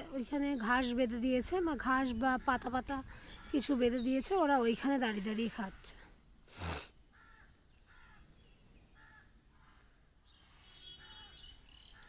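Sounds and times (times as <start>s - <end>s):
crow cawing: 7.1s - 8.3s, 9.0s - 10.0s.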